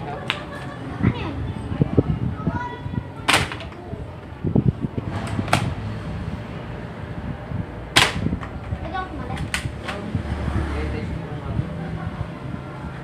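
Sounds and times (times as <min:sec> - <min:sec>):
steady low rumble: 0:00.0 - 0:13.0
airsoft rifle snapping: 0:03.3 - 0:03.8, 0:08.0 - 0:08.6.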